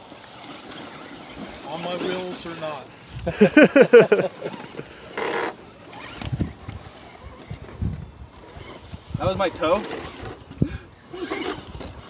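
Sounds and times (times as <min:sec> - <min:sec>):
person laughing loudly: 0:03.2 - 0:04.9.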